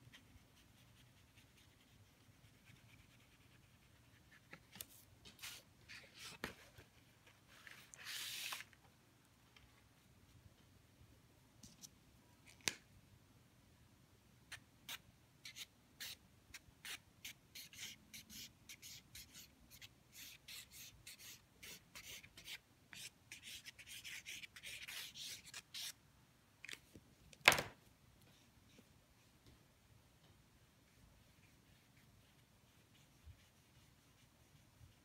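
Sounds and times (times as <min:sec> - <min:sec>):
pen scratching on paper: 0:17.6 - 0:25.9.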